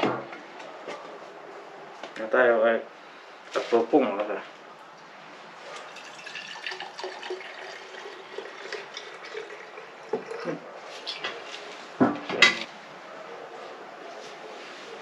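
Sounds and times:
liquid pouring from metal can: 5.8 - 10.4.

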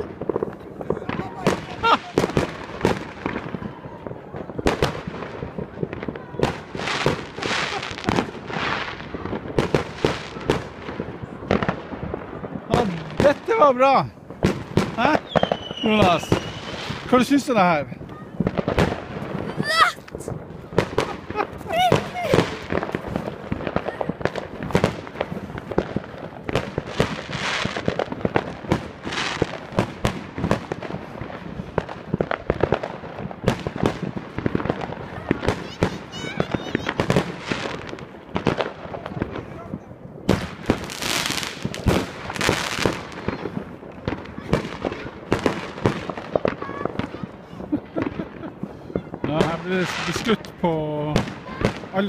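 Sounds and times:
fireworks hissing: 0.0 - 39.4, 40.2 - 52.0
fireworks banging: 0.0 - 52.0.

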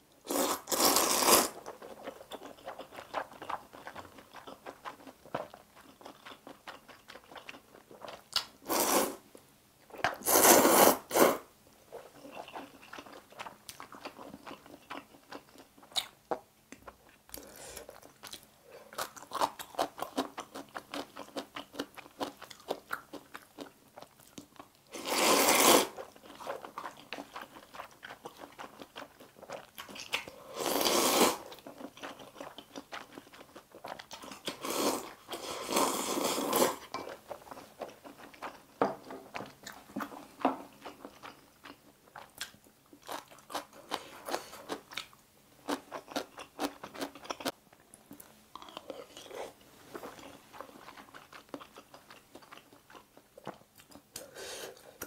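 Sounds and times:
noodle slurping: 0.3 - 1.6, 25.0 - 26.0
wet chewing and mouth clicks: 0.8 - 8.6, 11.9 - 24.9, 26.0 - 30.4, 31.5 - 35.4, 36.3 - 49.4, 50.0 - 54.3.

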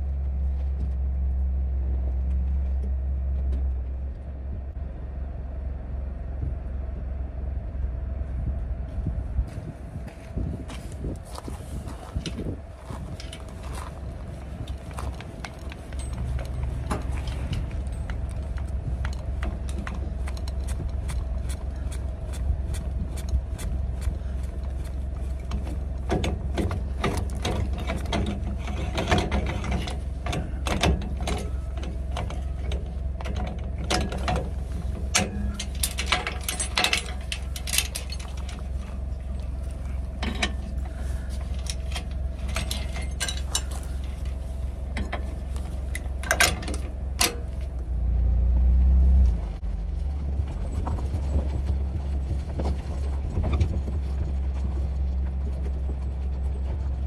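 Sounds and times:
steady low hum: 0.0 - 57.0
chains rattling on metal coupler: 14.6 - 21.3, 25.4 - 45.3, 45.9 - 47.6.

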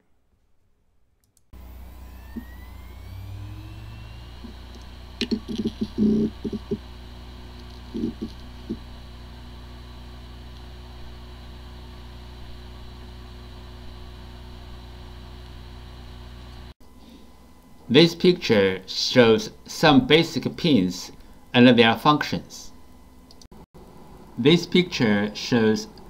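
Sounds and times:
hard disk spinning hum: 1.5 - 26.0
hard disk whine: 1.6 - 26.0.

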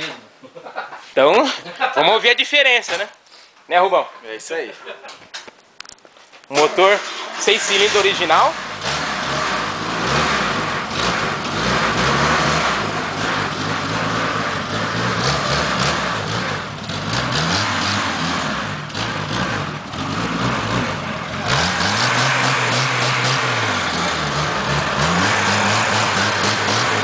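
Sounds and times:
car engine revving: 6.7 - 27.0.

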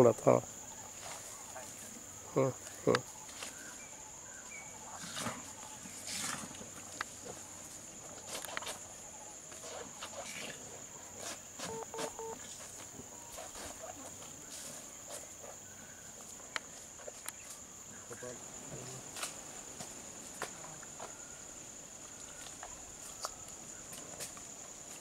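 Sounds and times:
insects droning: 0.0 - 25.0
short beeps: 11.7 - 12.4.

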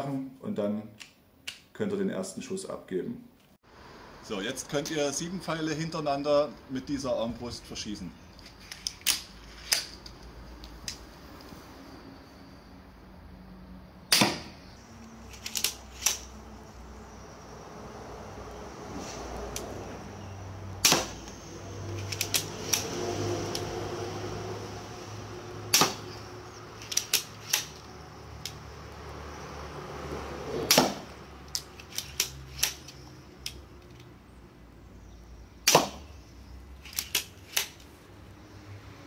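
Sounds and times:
lever mechanism clicking: 15.3 - 16.3, 22.0 - 22.9, 26.8 - 28.6, 30.7 - 34.1, 36.8 - 37.9
crossbow string snapping: 25.7 - 26.2, 26.8 - 28.6, 35.7 - 36.0.

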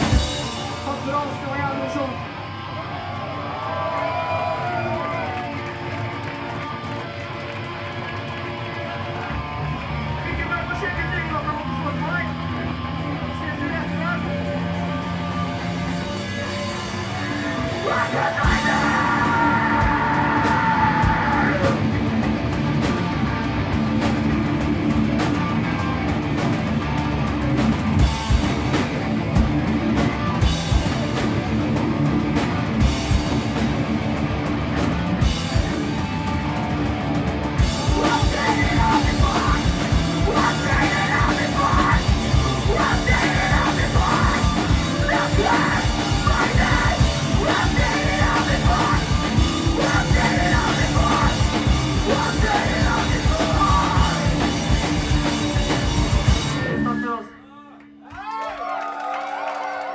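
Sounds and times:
metal band playing live: 0.0 - 57.3
screamed vocals: 17.6 - 21.8, 40.2 - 51.4.

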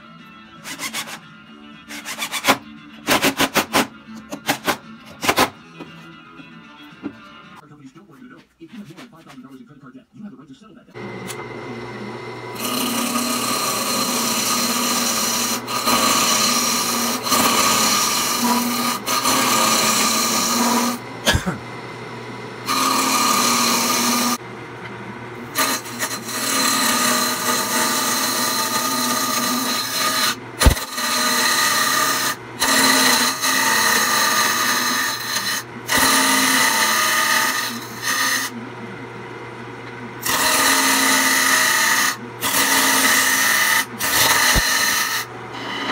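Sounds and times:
wood lathe humming: 11.0 - 38.9, 40.1 - 45.9
turning tool scraping wood: 12.5 - 21.0, 22.6 - 24.4, 25.5 - 38.6, 40.2 - 45.9.

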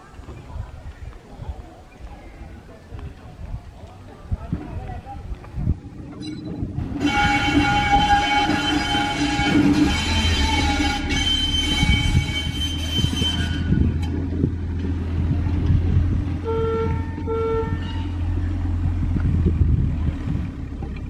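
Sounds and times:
train engine rumble: 0.0 - 21.0
train horn: 6.8 - 14.2, 16.4 - 18.2.

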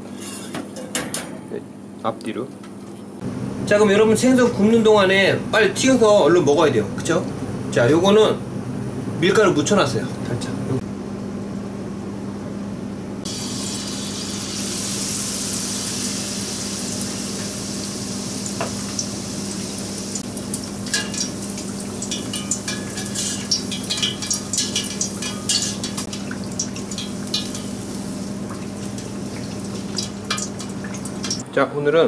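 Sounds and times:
fish deep frying in oil: 13.3 - 31.4.

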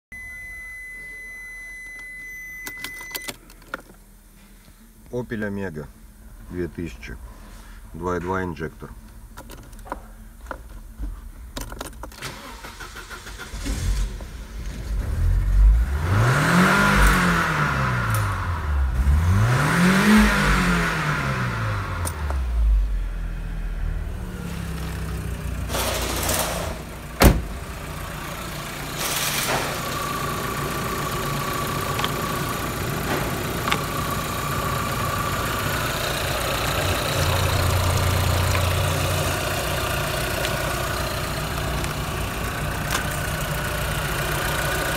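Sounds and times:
car engine starting and revving: 12.2 - 44.9
car engine idling: 20.1 - 44.9.

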